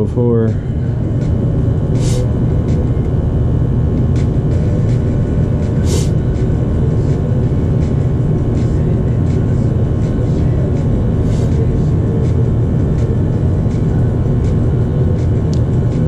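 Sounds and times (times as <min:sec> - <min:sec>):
gas furnace rumbling: 0:00.0 - 0:16.0
brief hisses: 0:05.8 - 0:06.1.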